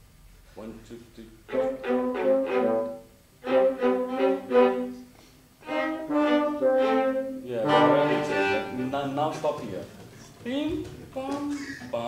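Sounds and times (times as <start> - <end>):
instrumental ensemble playing chords: 1.5 - 10.0.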